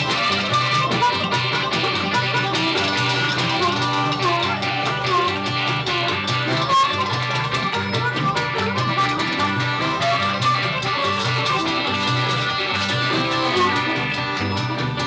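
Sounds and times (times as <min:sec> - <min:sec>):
bluegrass-rock band playing: 0:00.0 - 0:15.0
harmonica lead line: 0:00.0 - 0:15.0.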